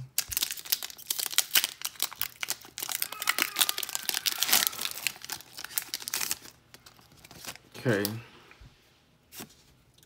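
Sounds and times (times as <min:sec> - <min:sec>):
foil wrapper tearing and crinkling: 0:00.2 - 0:08.2.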